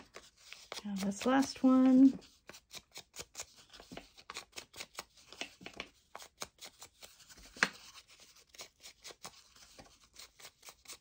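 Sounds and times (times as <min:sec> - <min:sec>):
sponge brush dabbing paper: 0:00.0 - 0:04.5
paper rustling: 0:00.0 - 0:11.0.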